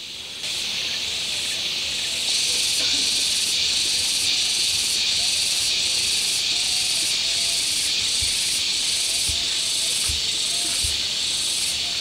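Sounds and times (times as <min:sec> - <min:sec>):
insect chorus buzzing: 0:00.0 - 0:12.0.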